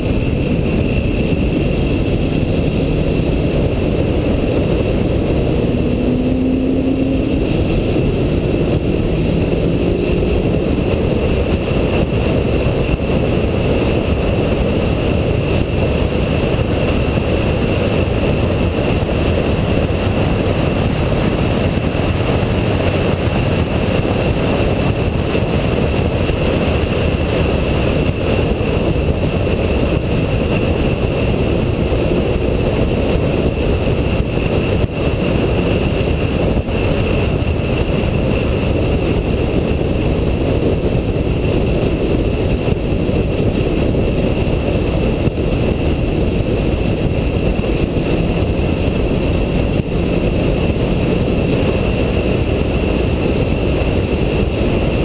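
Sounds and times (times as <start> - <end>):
car engine rumble: 0.0 - 55.0
wind noise: 0.0 - 55.0.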